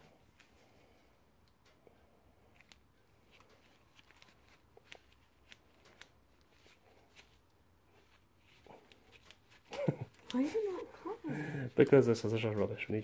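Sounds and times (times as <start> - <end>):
handling rustle: 2.5 - 11.2.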